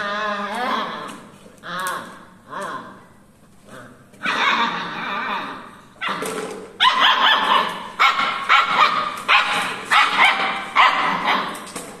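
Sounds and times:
puppy yapping: 4.2s - 11.7s.

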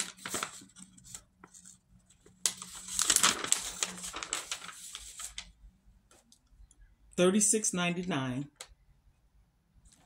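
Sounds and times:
packaging crinkling: 2.3s - 5.5s.

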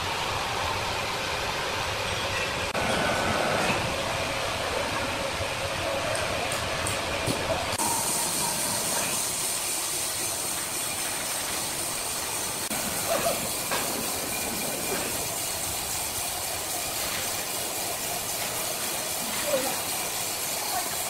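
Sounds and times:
sawmill workshop hiss: 7.8s - 21.0s.

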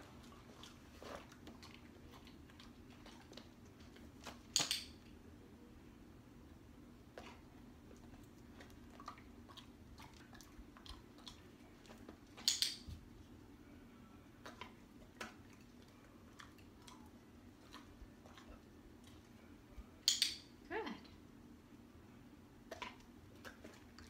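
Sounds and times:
dog chewing a treat: 0.0s - 4.6s, 7.1s - 12.5s, 14.4s - 19.4s.

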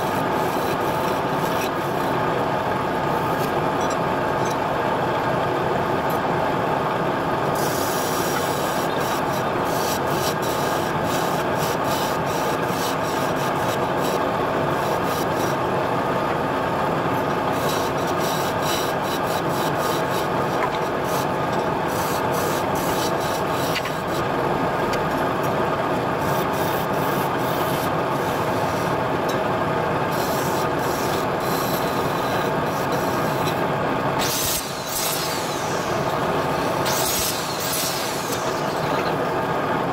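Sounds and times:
wood lathe motor hum: 7.4s - 29.3s, 29.9s - 39.9s
turning tool scraping wood: 7.6s - 14.2s, 17.2s - 24.2s, 34.2s - 39.2s.

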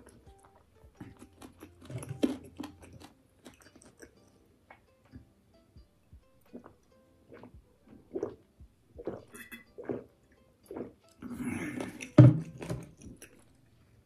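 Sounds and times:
person gulping water: 6.5s - 8.4s, 9.0s - 10.1s, 10.7s - 13.4s
bottle thumping down: 12.1s - 12.9s.

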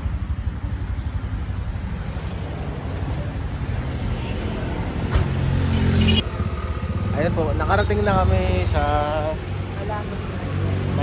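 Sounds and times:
road noise: 0.0s - 11.0s
tuk-tuk engine rumble: 0.0s - 11.0s.

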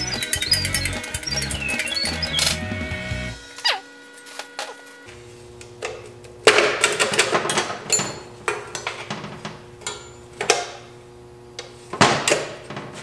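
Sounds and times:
metal clanking and knocking: 6.5s - 10.7s.

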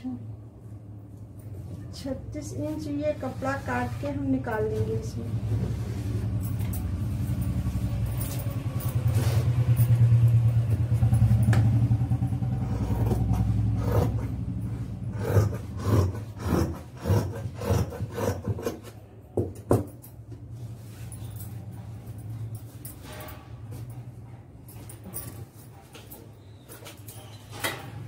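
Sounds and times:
vehicle engine hum passing: 2.2s - 16.4s.

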